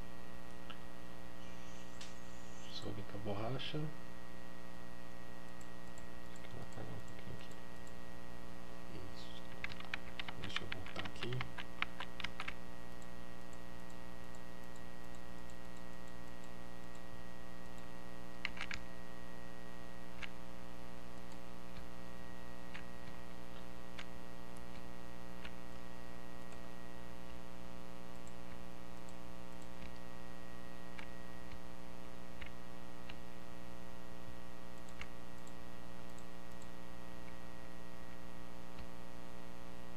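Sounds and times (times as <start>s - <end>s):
electrical mains hum: 0.0s - 39.9s
mouse and keyboard clicks: 9.3s - 13.1s, 17.6s - 18.8s, 20.2s - 20.4s, 32.4s - 33.2s, 34.8s - 37.4s.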